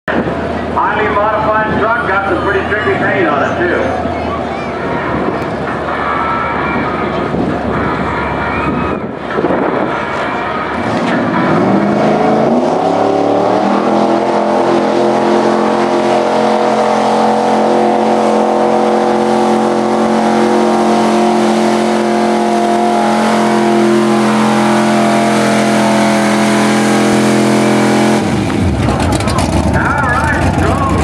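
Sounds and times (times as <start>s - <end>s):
truck engine revving under load: 0.1s - 31.0s.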